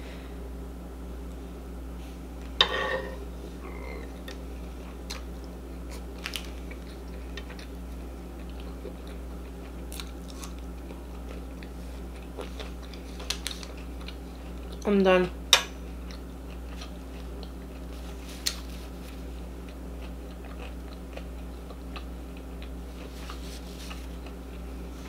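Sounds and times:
low electrical hum: 0.0s - 25.0s
chewing and biting food: 4.2s - 14.8s, 16.0s - 25.0s
small clicks and crunches: 6.2s - 7.7s.

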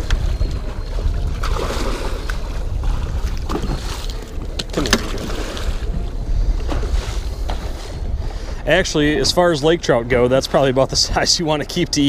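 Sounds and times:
fishing tackle clicks and rustles: 0.0s - 8.1s
wind rumbling on microphone: 0.0s - 12.0s.

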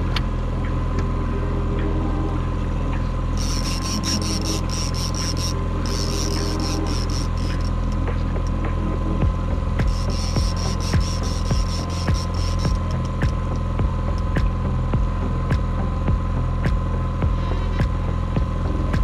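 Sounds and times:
outboard motor running: 0.0s - 19.0s
fishing reel clicking: 3.4s - 8.6s, 9.8s - 14.4s.

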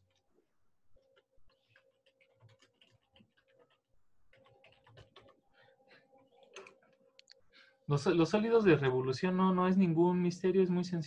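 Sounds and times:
typing on computer keyboard: 1.0s - 5.4s, 6.2s - 7.0s.

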